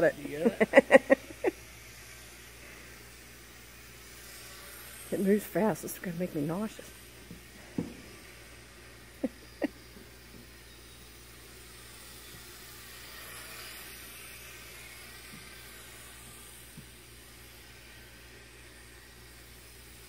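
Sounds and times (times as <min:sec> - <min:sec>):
model airplane motor whine: 0:00.0 - 0:20.0.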